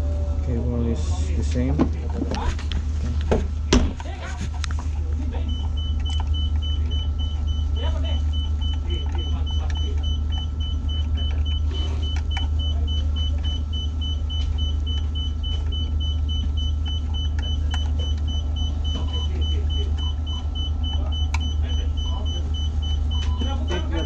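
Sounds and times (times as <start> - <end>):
low machinery drone: 0.0 - 24.0
rapid pulsing electronic beep: 5.1 - 24.0.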